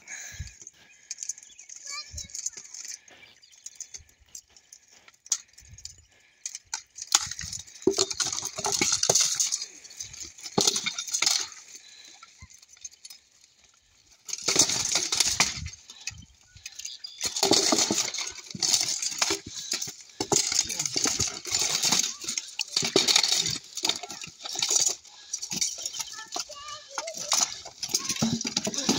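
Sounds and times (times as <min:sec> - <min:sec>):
plate armour clanking: 0:17.2 - 0:28.9.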